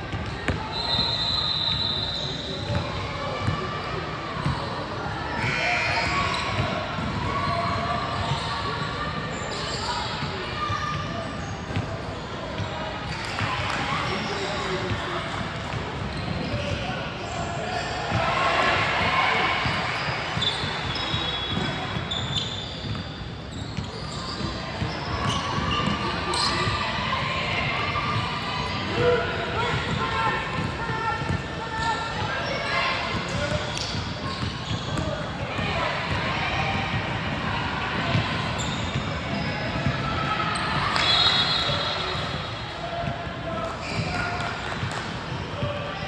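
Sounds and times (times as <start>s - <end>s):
murmur of voices: 0.0s - 46.0s
sneakers squeaking on floor: 0.1s - 12.8s, 14.1s - 18.3s, 19.3s - 26.8s, 28.1s - 37.2s, 38.0s - 46.0s
basketball bouncing on court: 6.5s - 7.2s, 30.6s - 31.5s, 33.1s - 35.2s.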